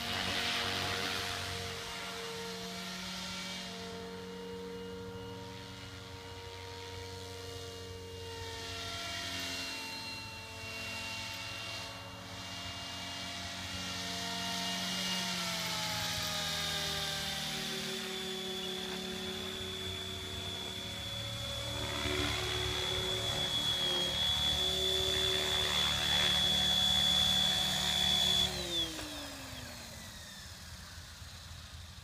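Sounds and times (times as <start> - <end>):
rc helicopter motor whine: 0.0 - 32.0
rotor blade whoosh: 16.1 - 30.8.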